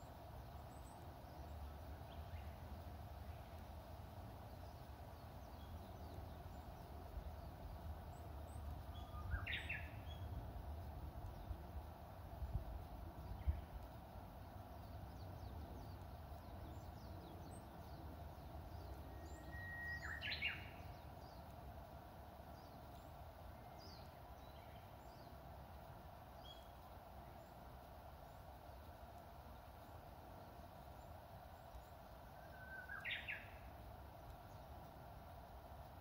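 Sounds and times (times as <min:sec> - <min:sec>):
warbler singing: 0:04.4 - 0:21.7, 0:22.4 - 0:25.6, 0:26.2 - 0:27.6, 0:28.2 - 0:34.9
faint high bird chirps: 0:08.3 - 0:10.4, 0:14.7 - 0:21.5, 0:30.4 - 0:34.8.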